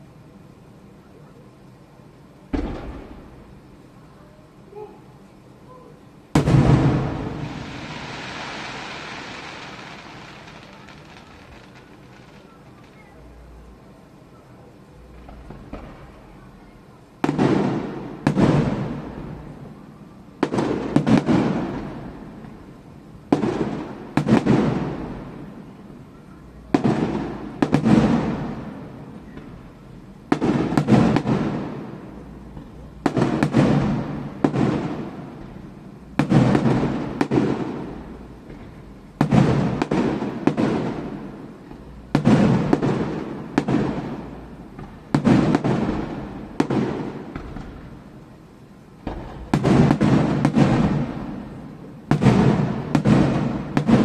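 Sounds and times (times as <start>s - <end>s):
firework shells bursting: 49.0s - 54.0s.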